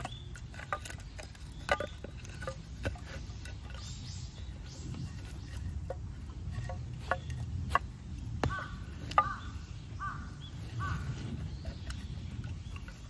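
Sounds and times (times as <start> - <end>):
firewood knocking together: 0.0 - 3.8, 5.0 - 9.6
bird calling: 0.0 - 13.0.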